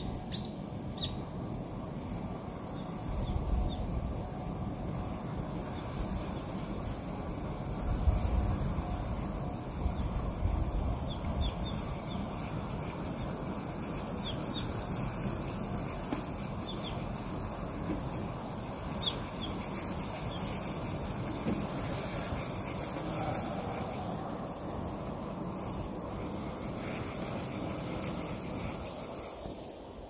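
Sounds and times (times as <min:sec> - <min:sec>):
outdoor noise rush: 0:00.0 - 0:30.0
wind buffeting microphone: 0:00.0 - 0:30.0
high bird chirps: 0:00.3 - 0:01.2.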